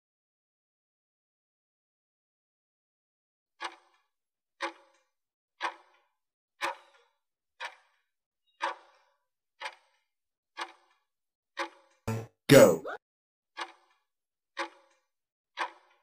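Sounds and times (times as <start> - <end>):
timer ticking: 11.6 - 12.4.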